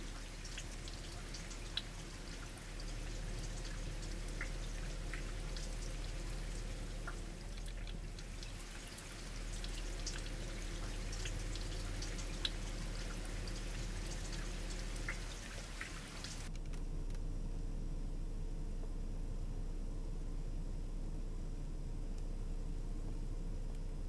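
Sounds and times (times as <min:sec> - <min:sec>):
floodwater running across road: 0:00.0 - 0:16.5
small drips and ticks: 0:00.0 - 0:16.8.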